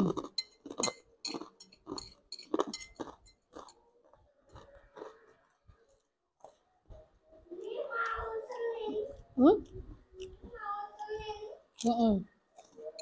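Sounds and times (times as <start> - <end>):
person chewing noodles: 0.0 - 6.8, 12.5 - 13.0.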